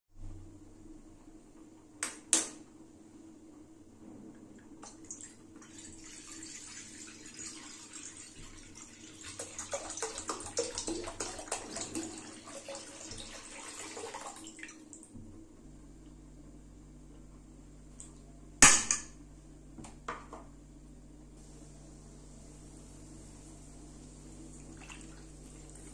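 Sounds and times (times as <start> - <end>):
water pouring and splashing: 4.8 - 15.1, 23.3 - 25.9.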